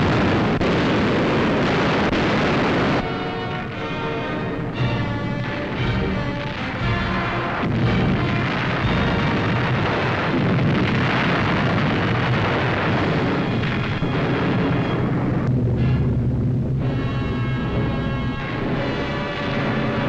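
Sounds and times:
explosions din: 0:00.0 - 0:03.3, 0:05.2 - 0:20.0
soundtrack music: 0:03.0 - 0:09.6, 0:15.6 - 0:20.0.

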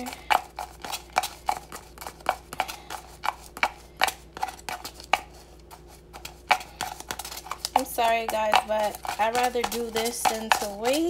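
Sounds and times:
metal utensil tapping in plastic shaker: 0:06.2 - 0:11.0.

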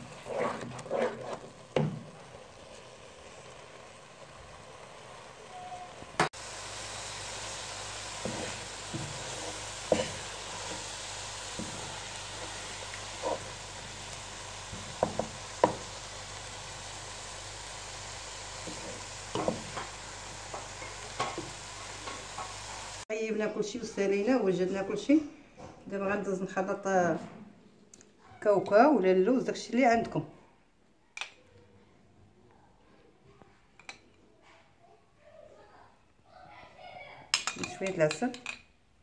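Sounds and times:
spatula scraping a pot: 0:00.0 - 0:02.4, 0:08.0 - 0:16.0
food sizzling in a pot: 0:00.0 - 0:25.1.

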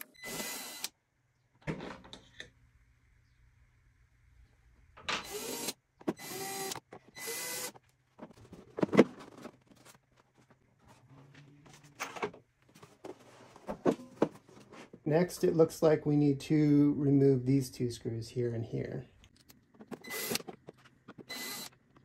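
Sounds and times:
cordless drill running: 0:00.2 - 0:00.9, 0:05.2 - 0:07.8, 0:20.0 - 0:20.4, 0:21.3 - 0:21.7.

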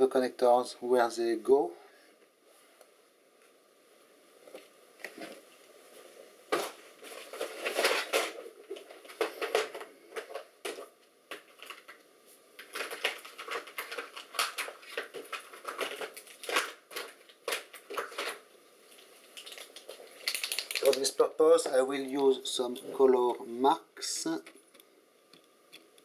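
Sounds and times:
rustling and crinkling: 0:04.4 - 0:23.4.

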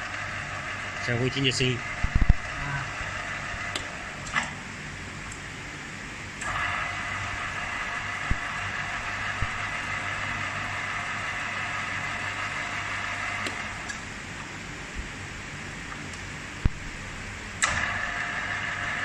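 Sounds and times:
lathe motor whining: 0:00.0 - 0:04.6, 0:06.4 - 0:14.1, 0:17.6 - 0:19.0
lathe switch click: 0:17.6 - 0:17.9.

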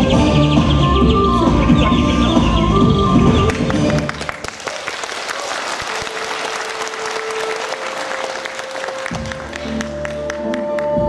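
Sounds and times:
dance music: 0:00.0 - 0:04.4
audience applauding: 0:03.5 - 0:11.0.

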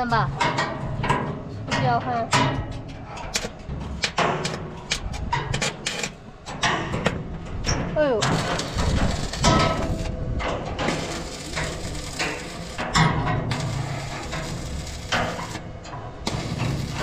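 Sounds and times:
arc welder crackling: 0:03.3 - 0:07.1, 0:08.1 - 0:17.0.

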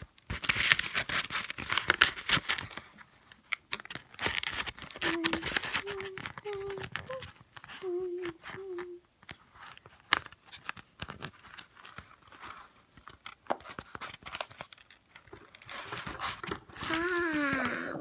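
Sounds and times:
paper rustling and crinkling: 0:00.0 - 0:18.0
person humming a note: 0:05.0 - 0:09.0.

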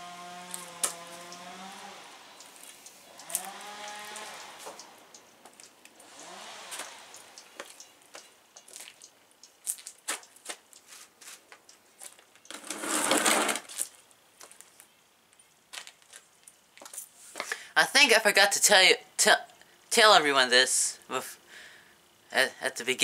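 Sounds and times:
rustling scrape: 0:12.5 - 0:13.8.

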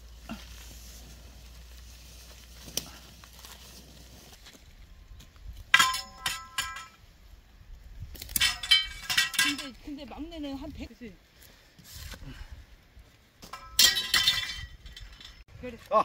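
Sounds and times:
faint rustle: 0:00.0 - 0:05.8, 0:09.7 - 0:13.5
metal stakes clanking: 0:05.6 - 0:07.0, 0:08.1 - 0:10.0, 0:13.4 - 0:15.4.

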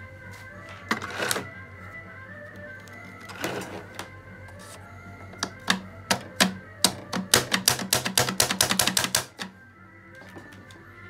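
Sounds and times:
faint background music: 0:00.0 - 0:11.0
sharp clicks: 0:05.4 - 0:09.6.

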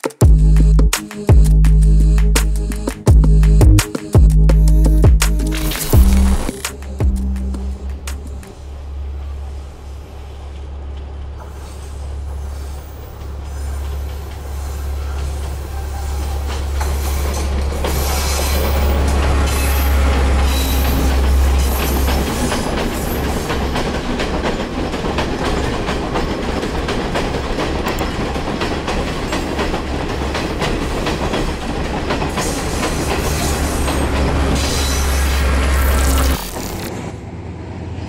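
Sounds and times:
train rumbling past: 0:06.0 - 0:38.0
train wheels clacking on rails: 0:10.5 - 0:35.9.

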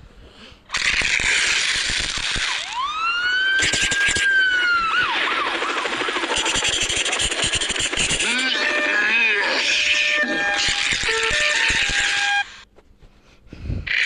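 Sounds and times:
sliding whistle-like tone: 0:02.6 - 0:12.6.

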